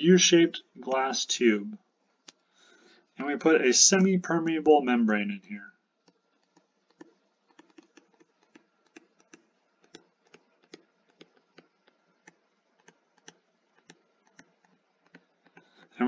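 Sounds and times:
stylus tapping on tablet screen: 6.0s - 16.0s.

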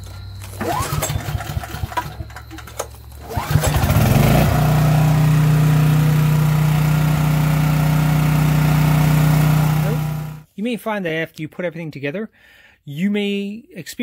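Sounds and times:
generator engine running: 0.1s - 10.5s
recoil rope pull cranking engine: 0.4s - 10.5s.

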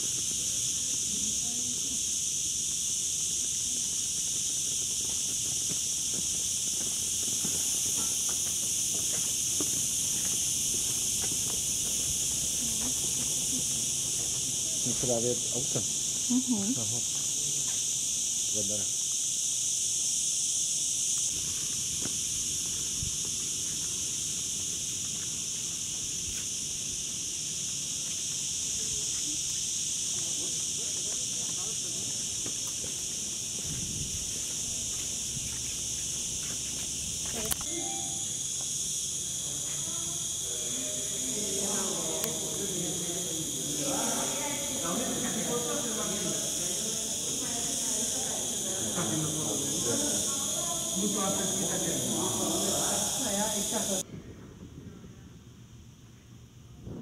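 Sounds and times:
cicadas chirring: 0.0s - 54.1s
footsteps on stone paving: 3.8s - 14.6s, 30.9s - 37.5s.

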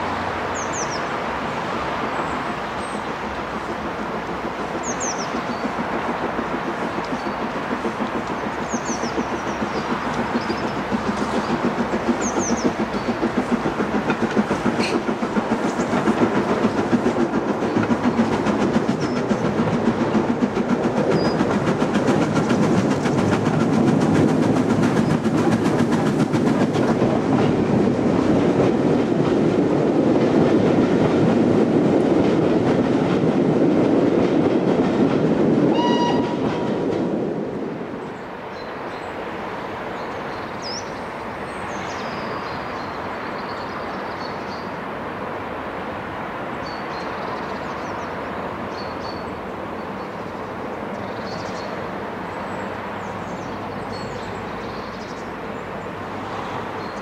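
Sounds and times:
rail noise: 0.0s - 57.0s
steam locomotive exhaust chuffs: 3.0s - 38.0s.

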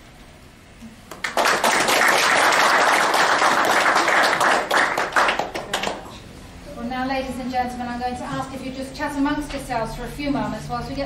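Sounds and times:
audience applauding: 1.1s - 6.2s.

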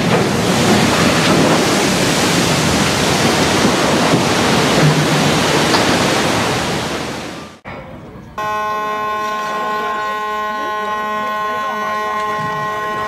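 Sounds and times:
water rushing and splashing: 0.0s - 7.6s.

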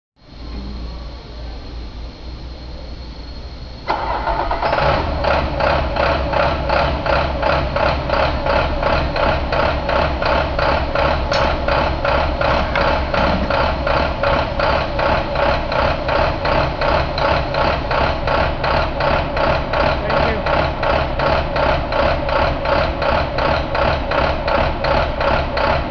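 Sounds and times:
diesel engine running with pulsing beat: 3.7s - 25.9s.

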